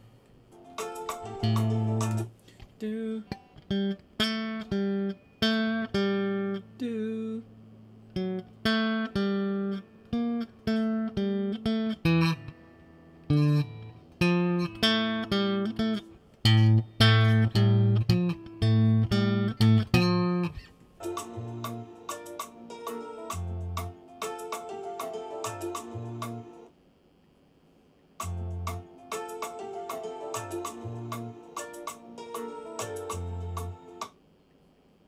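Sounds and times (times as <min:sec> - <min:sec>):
clean electric guitar: 0:08.1 - 0:26.5.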